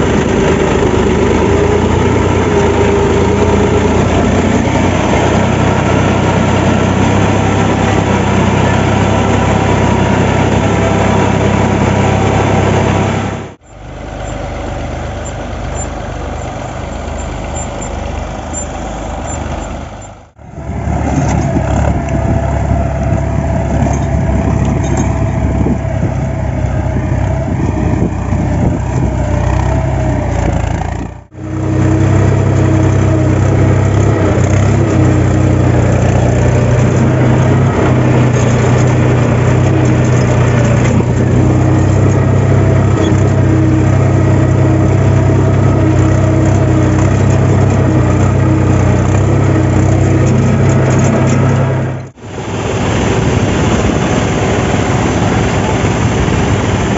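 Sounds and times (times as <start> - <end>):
tractor diesel engine running: 0.0 - 56.9.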